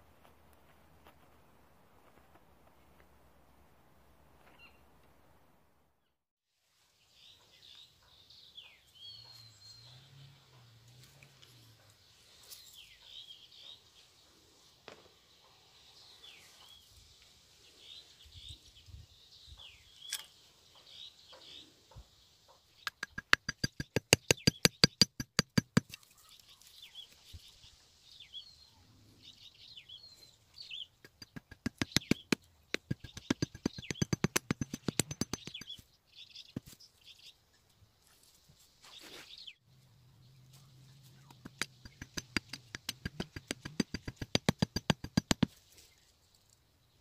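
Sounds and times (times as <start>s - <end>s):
small birds chirping: 7.0s - 47.0s
rapid clicking rattle: 32.8s - 35.8s.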